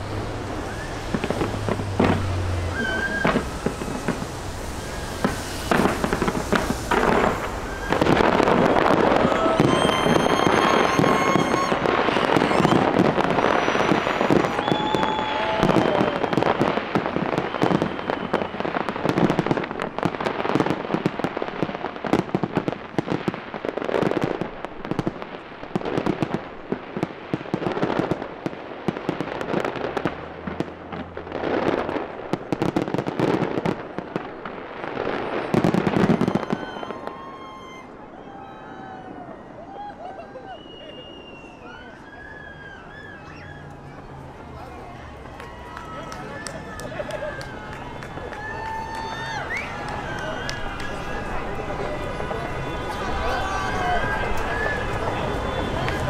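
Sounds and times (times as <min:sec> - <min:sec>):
firework shells bursting and crackling: 0:00.0 - 0:38.0
firework whistles: 0:00.4 - 0:22.3, 0:31.4 - 0:44.2, 0:45.4 - 0:56.0.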